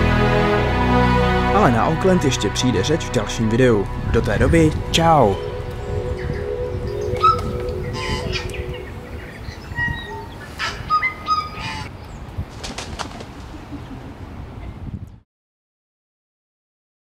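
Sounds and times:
steady low rumble: 0.0s - 10.1s
birds honking: 0.0s - 11.9s
bird wingbeats: 12.4s - 14.2s.

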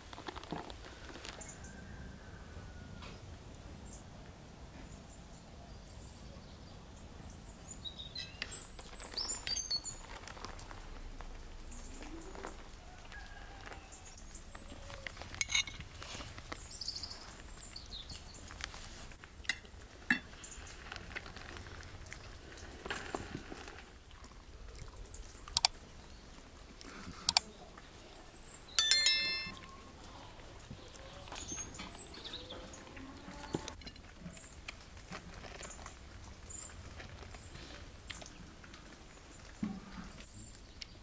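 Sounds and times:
low outdoor background: 14.2s - 32.9s
forks clinking on plates: 28.8s - 29.6s.

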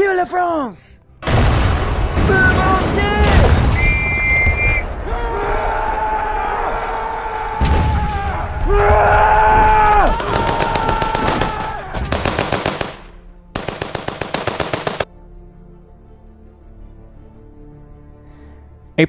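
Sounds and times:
men yelling: 5.0s - 12.3s
machine-gun fire: 10.1s - 15.1s.

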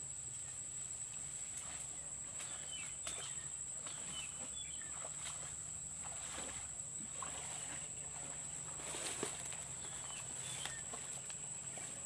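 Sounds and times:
footsteps through dry undergrowth: 0.9s - 12.0s.

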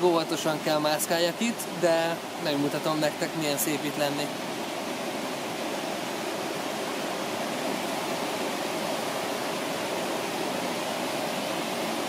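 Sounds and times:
river cascade rushing: 0.0s - 12.0s.

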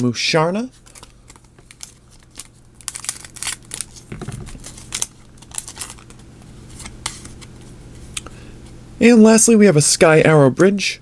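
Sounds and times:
foil wrapper tearing and crinkling: 0.8s - 7.5s.

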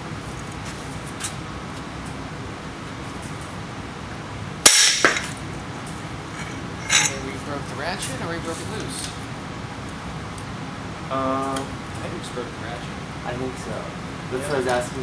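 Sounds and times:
sharp metallic crack: 4.6s - 5.4s.

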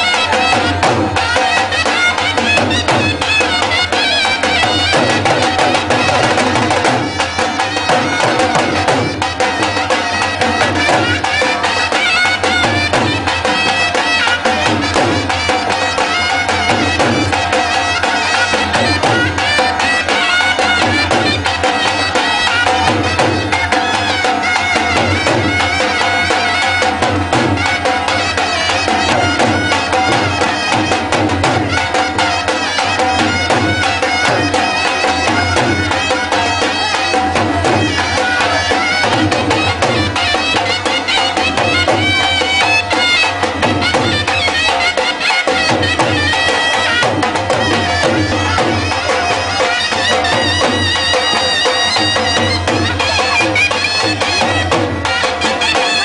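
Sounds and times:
barrel drums playing folk beat: 0.0s - 56.0s
wind instrument melody: 0.0s - 56.0s.

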